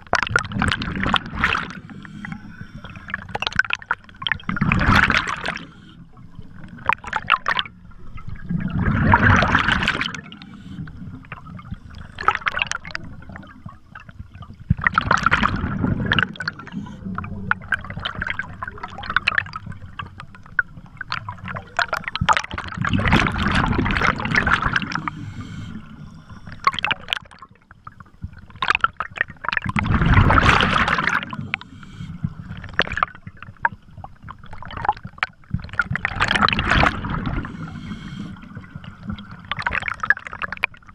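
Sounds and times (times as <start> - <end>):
bubbles crackling: 0.0 - 40.9
diver exhaling bubbles: 0.4 - 6.0, 8.4 - 13.4, 22.1 - 27.4, 29.6 - 33.1, 35.7 - 40.6.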